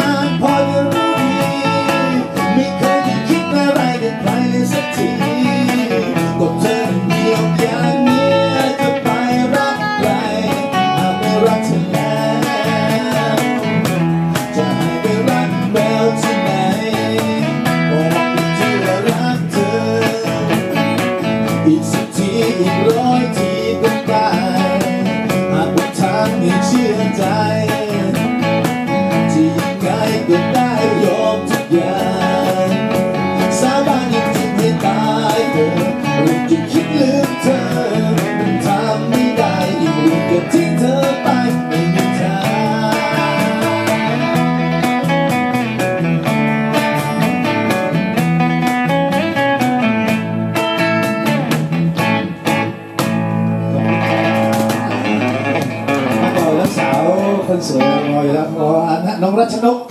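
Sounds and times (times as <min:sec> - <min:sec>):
man singing into microphone: 0:00.0 - 0:45.0, 0:56.1 - 0:59.9
strummed acoustic guitars: 0:00.0 - 0:59.1
cajon beat: 0:00.0 - 0:59.2.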